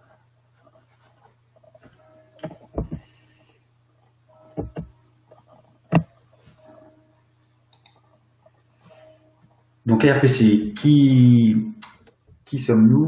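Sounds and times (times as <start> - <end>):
faint steady hum: 0.0 - 13.0
knock: 4.6 - 4.9.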